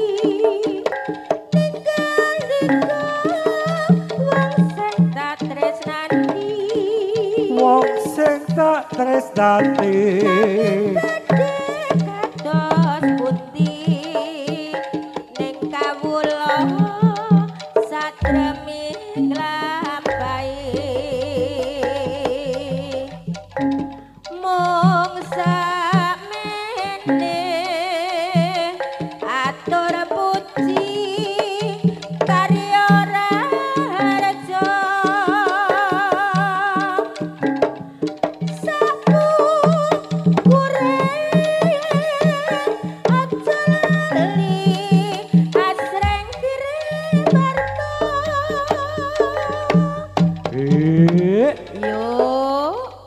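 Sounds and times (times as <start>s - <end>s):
drums in quick rhythm: 0.0s - 53.0s
wavering bending melody: 0.0s - 53.0s
high melody line: 18.2s - 23.9s, 45.8s - 52.2s.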